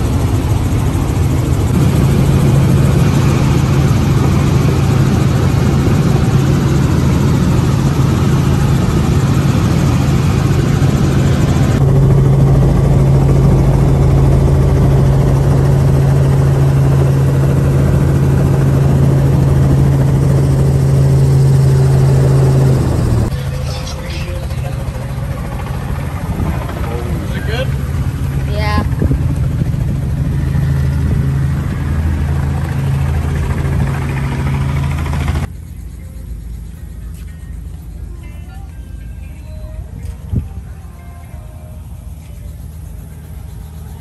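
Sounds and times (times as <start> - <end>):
helicopter engine and rotor drone: 0.0 - 44.0.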